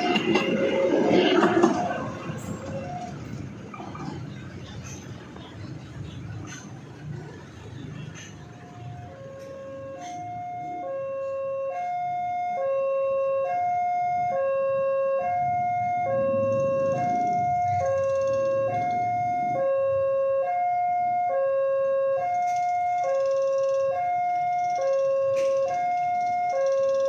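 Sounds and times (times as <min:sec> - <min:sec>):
level-crossing alarm ding-dong: 0:09.1 - 0:27.0.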